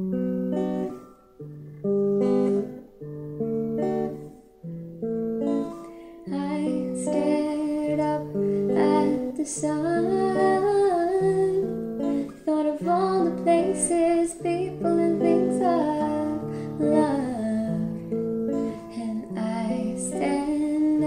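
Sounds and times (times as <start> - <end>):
electric guitar arpeggios: 0.0 - 21.0
woman singing: 6.1 - 21.0.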